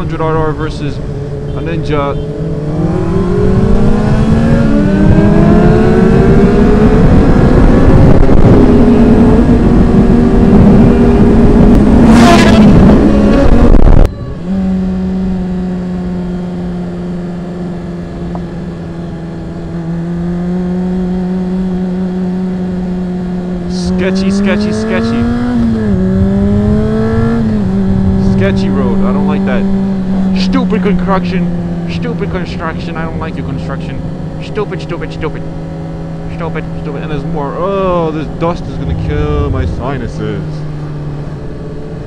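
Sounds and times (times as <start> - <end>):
motorcycle engine accelerating: 0.0 - 42.0
wind rush: 2.5 - 14.4, 24.9 - 29.0, 37.8 - 42.0.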